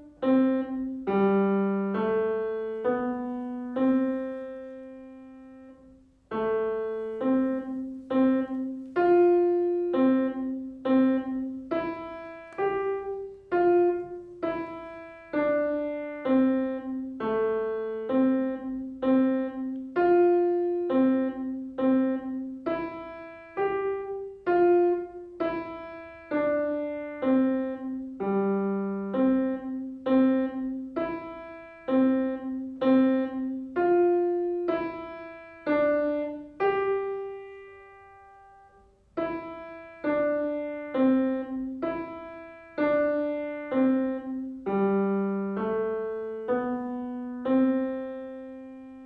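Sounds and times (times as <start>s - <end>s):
simple piano melody: 0.0s - 49.0s.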